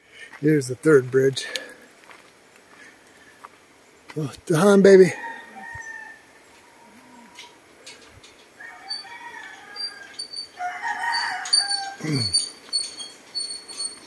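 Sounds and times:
rooster crowing: 5.1 - 7.6, 8.6 - 12.4.

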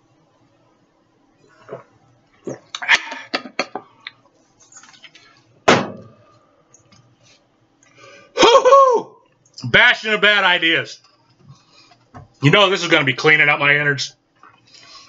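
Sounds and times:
man coughing: 2.8 - 3.8.

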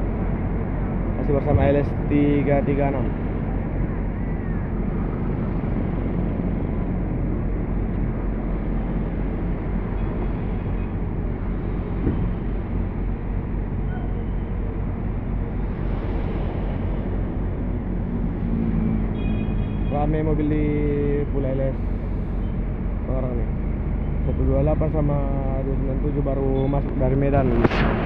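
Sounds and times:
diesel bus engine idling: 20.1 - 25.6.

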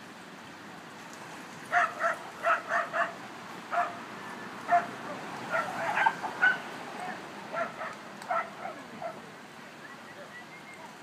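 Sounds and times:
dog barking: 1.7 - 4.0, 4.7 - 9.2.

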